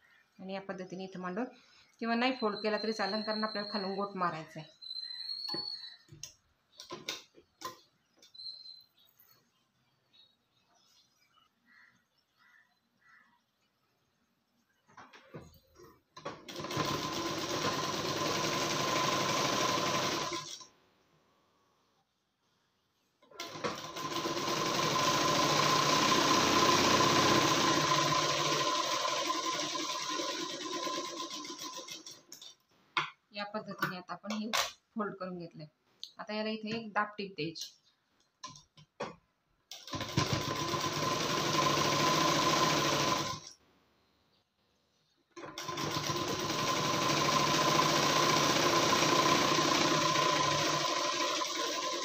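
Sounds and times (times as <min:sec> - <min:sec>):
sewing machine stitching: 0:16.2 - 0:20.6, 0:23.3 - 0:32.3, 0:39.7 - 0:43.5, 0:45.4 - 0:52.0.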